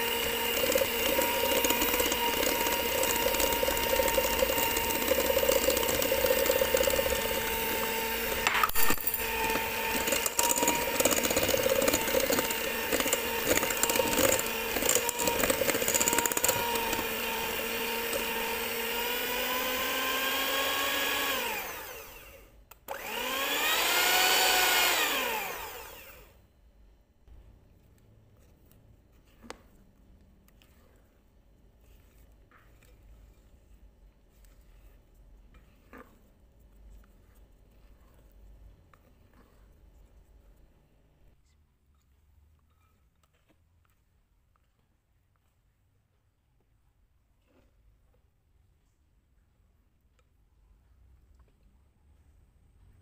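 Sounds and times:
electric hand mixer whining: 0.0s - 26.4s.

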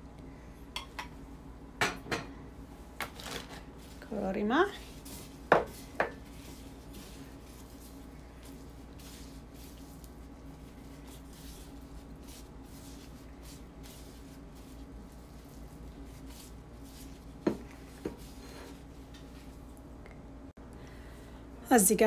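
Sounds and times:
steady low hum: 0.0s - 22.0s
soft rubbing and mixing: 2.5s - 20.2s.

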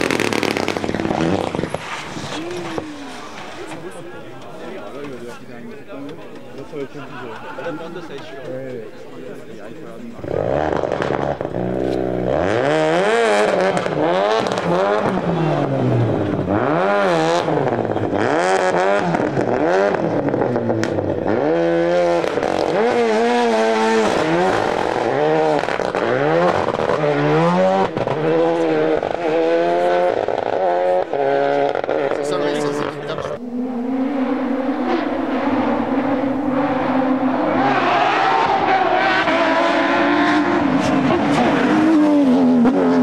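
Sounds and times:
car engine revving: 0.0s - 43.0s.

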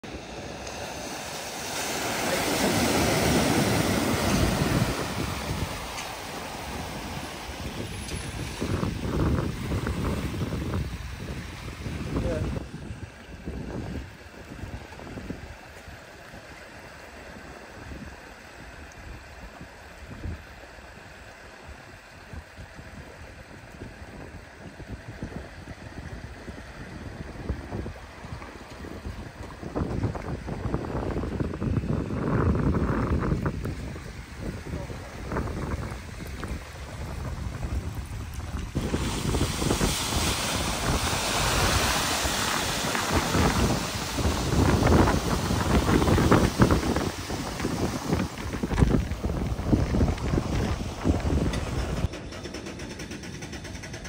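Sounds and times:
van splashing through water: 0.0s - 12.6s, 33.6s - 52.0s
wind gusting on microphone: 0.0s - 16.6s, 17.4s - 52.3s
floodwater rushing: 0.0s - 52.1s.

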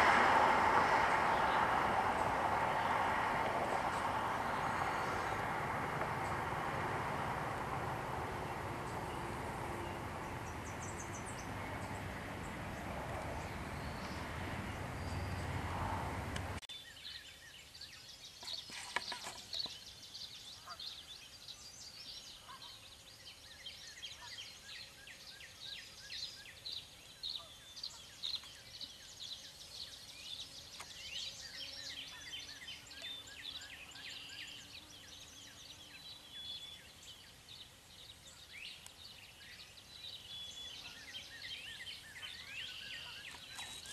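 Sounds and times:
steady rushing noise: 0.0s - 16.6s
small birds chirping: 1.1s - 43.9s.

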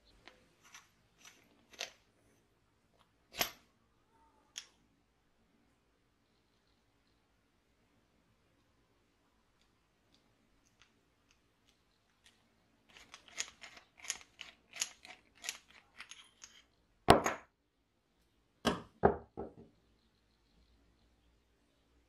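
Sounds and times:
knocks on wooden bench: 18.7s - 19.7s.

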